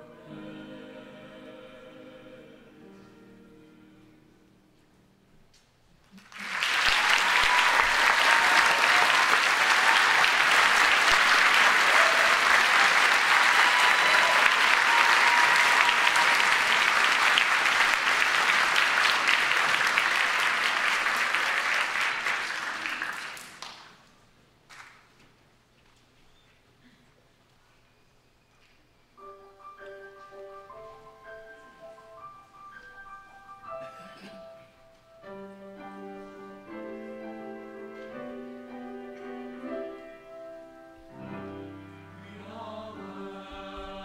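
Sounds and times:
audience applauding: 6.1 - 24.1.

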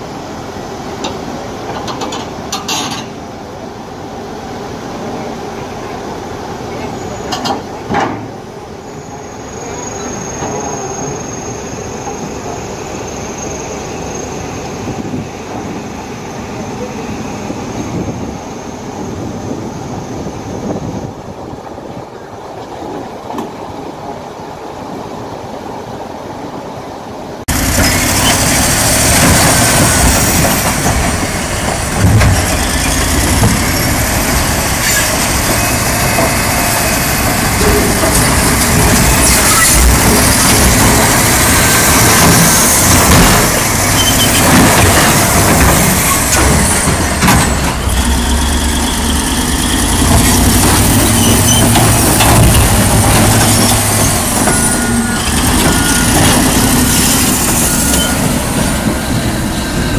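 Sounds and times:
heavy machinery running: 27.5 - 59.9.

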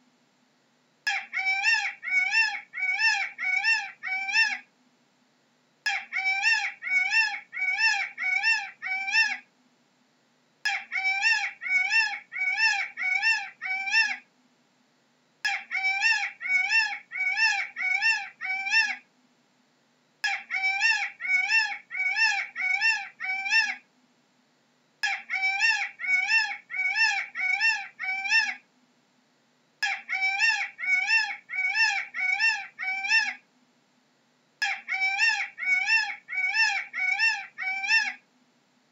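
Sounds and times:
peacock calling: 1.1 - 4.7, 5.9 - 9.5, 10.7 - 14.3, 15.5 - 19.1, 20.2 - 23.9, 25.0 - 28.7, 29.8 - 33.4, 34.6 - 38.2.

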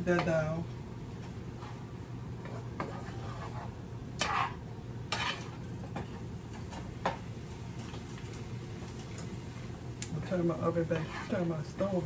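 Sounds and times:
wooden spoon scraping a pan: 1.5 - 7.2, 10.2 - 12.0
vegetables sizzling: 2.4 - 12.0.

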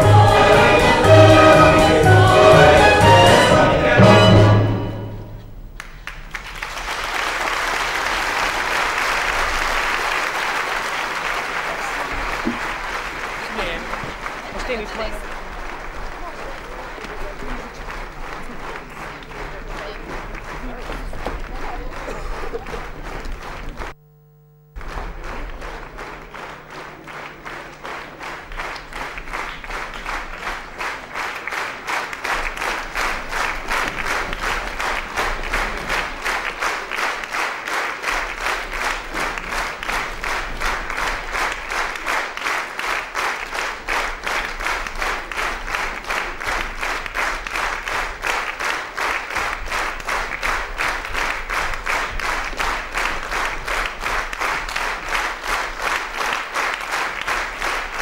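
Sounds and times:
audience applauding in unison: 5.6 - 58.0.

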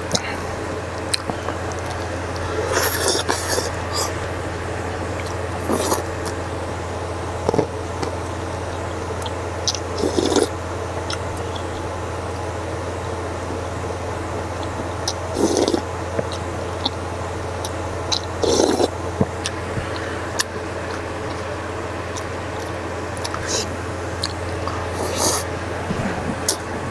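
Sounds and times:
chewing: 0.0 - 6.4, 7.4 - 11.7, 14.6 - 17.0, 17.6 - 26.7
steady low hum: 0.0 - 26.9
slurping noodles: 1.1 - 6.4, 10.0 - 10.5, 15.3 - 15.8, 18.4 - 19.0, 23.2 - 23.8, 24.6 - 26.9.

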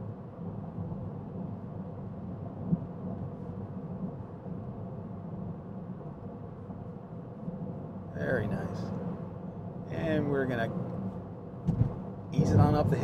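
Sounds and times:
car interior road noise: 0.0 - 13.0
short thump: 11.6 - 12.0.

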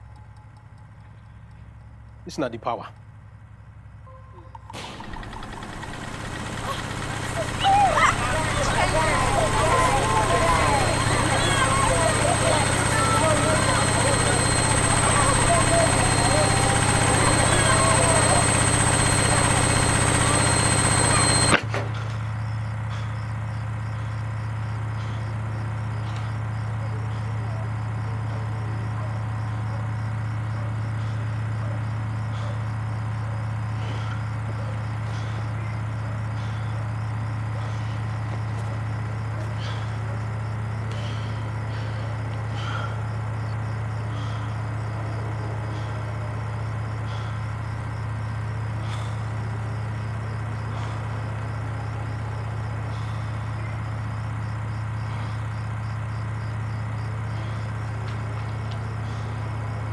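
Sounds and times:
steady low hum: 2.9 - 21.6
loud yelling: 5.2 - 21.6.

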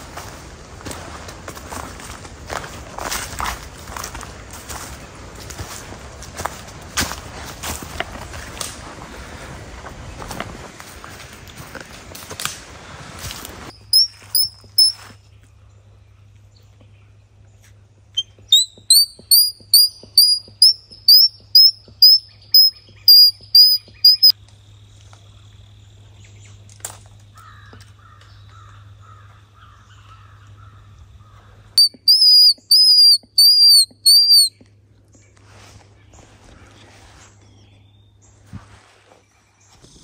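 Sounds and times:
squirrel call chirps: 13.7 - 15.1, 18.2 - 24.3, 31.8 - 34.6.

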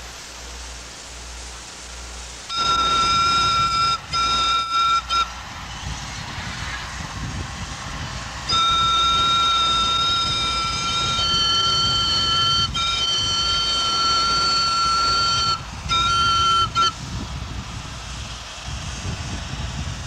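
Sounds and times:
train rumbling: 0.0 - 20.0
steam locomotive whistle: 2.5 - 7.0, 8.4 - 17.0.

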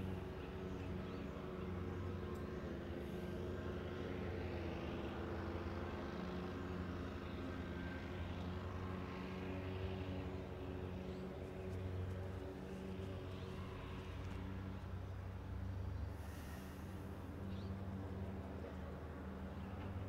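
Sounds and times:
low hum of held tones: 0.0 - 20.0.

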